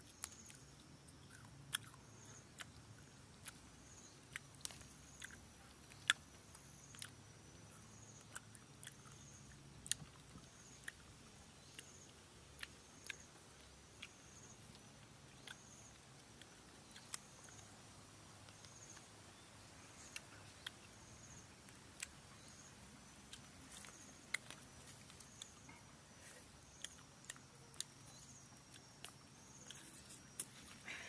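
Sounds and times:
faint high chirp: 0:18.5 - 0:31.0.

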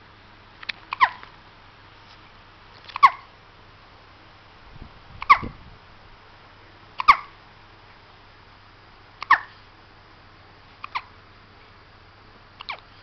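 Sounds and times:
baby hiccuping: 0:00.9 - 0:01.2, 0:02.9 - 0:03.3, 0:07.0 - 0:07.4, 0:09.2 - 0:09.5, 0:10.8 - 0:11.1.

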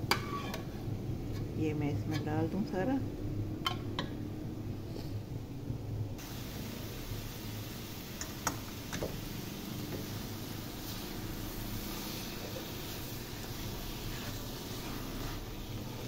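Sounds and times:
steady hiss: 0:06.2 - 0:16.0.

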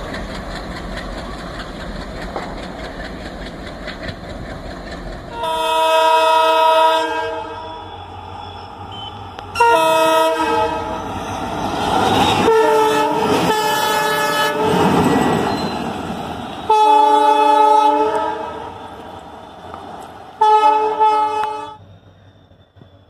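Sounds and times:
diesel locomotive engine: 0:00.0 - 0:23.0
locomotive air horn blasts: 0:05.3 - 0:11.0, 0:12.2 - 0:14.8, 0:16.6 - 0:18.8, 0:20.4 - 0:21.8.

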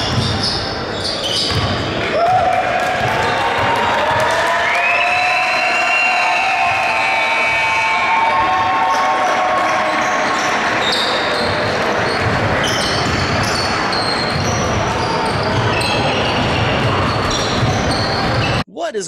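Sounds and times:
sneaker squeaks on hardwood: 0:00.0 - 0:02.0, 0:10.0 - 0:18.6.

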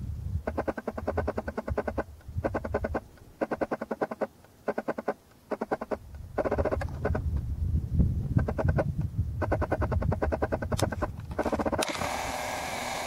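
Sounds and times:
wind rumbling on microphone: 0:00.0 - 0:12.8
animal rattling call: 0:00.4 - 0:07.2, 0:08.4 - 0:12.0.

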